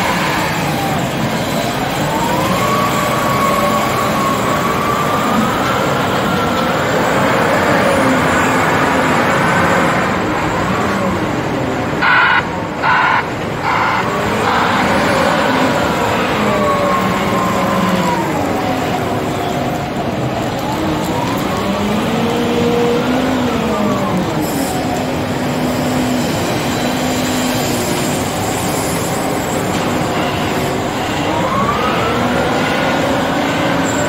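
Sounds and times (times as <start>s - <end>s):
wheel loader diesel engine: 0.0s - 34.0s.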